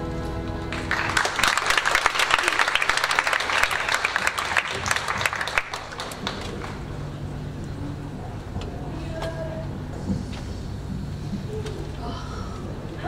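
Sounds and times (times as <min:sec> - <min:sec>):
music: 0:00.0 - 0:01.9
audience applauding: 0:00.6 - 0:07.3.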